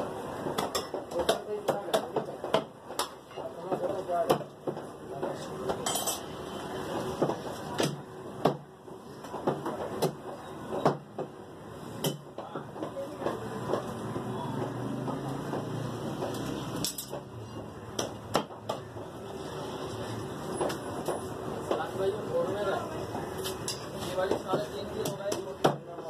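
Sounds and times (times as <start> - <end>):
cleaver chopping on wooden block: 17.9 - 19.0.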